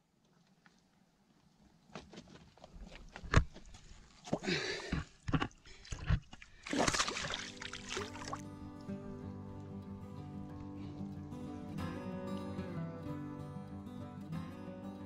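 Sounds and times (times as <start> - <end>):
knocks and scuffs on rocks: 1.8 - 4.4
water sloshing and splashing: 5.3 - 8.5.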